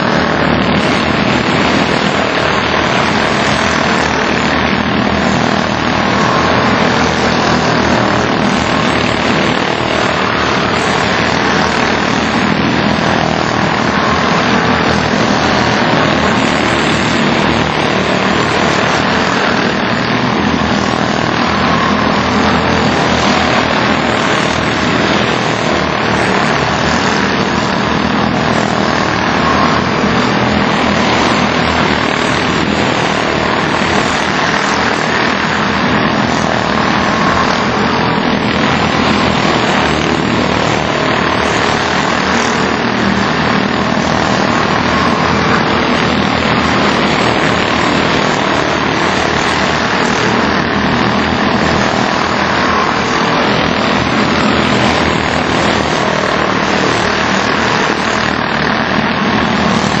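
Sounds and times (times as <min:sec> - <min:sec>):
small race car engines droning: 0:00.0 - 1:00.0.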